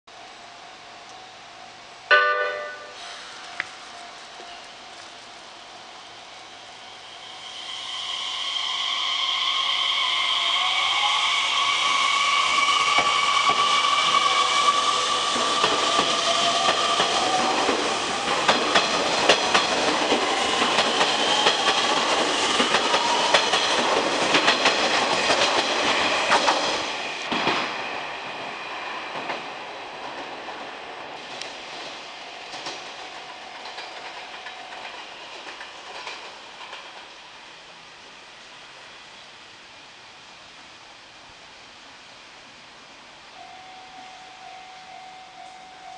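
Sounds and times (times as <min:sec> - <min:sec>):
electric train motors whining: 0:03.1 - 0:27.3
wheels clacking over rail joints: 0:12.7 - 0:28.0, 0:29.1 - 0:37.1.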